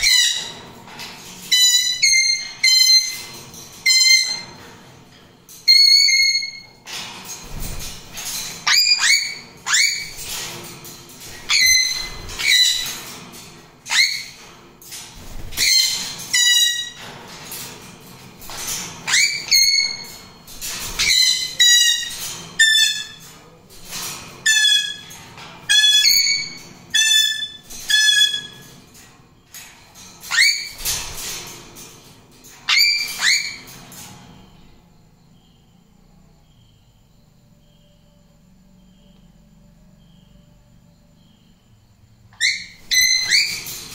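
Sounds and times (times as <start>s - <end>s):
parrots screeching: 1.5s - 4.5s, 8.6s - 10.4s, 11.3s - 13.0s, 13.9s - 14.4s, 15.4s - 17.0s, 18.5s - 20.3s, 20.9s - 23.2s, 25.7s - 28.6s, 30.3s - 30.8s, 32.7s - 33.7s, 42.3s - 43.8s.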